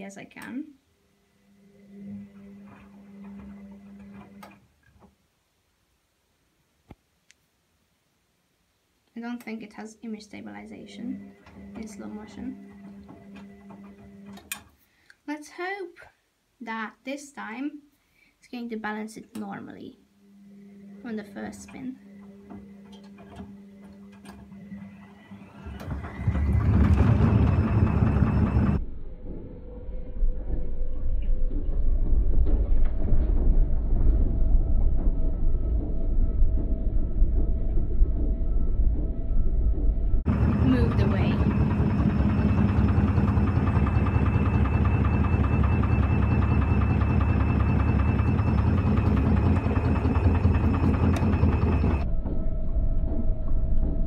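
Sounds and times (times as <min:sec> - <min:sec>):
washing machine motor hum: 0:00.0 - 0:05.1, 0:10.1 - 0:14.8, 0:20.1 - 0:54.0
washing machine rumble: 0:01.9 - 0:04.6, 0:10.2 - 0:14.7, 0:21.1 - 0:28.8, 0:39.7 - 0:52.1.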